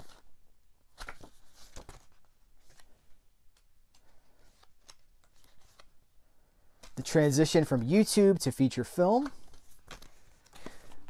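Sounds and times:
book pages rustling: 0.0s - 0.3s, 0.9s - 3.2s, 3.9s - 6.0s, 8.9s - 11.0s.

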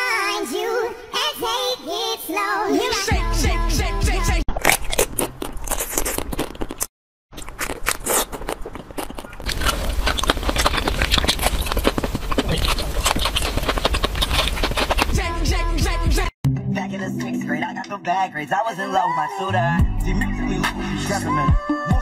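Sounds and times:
crunching bites of ice cream: 4.5s - 15.4s.

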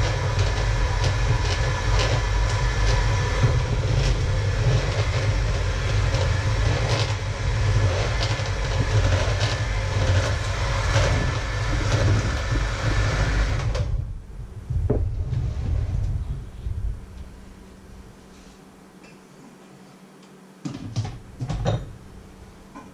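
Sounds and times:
electric mixer beating liquid: 0.0s - 14.0s.

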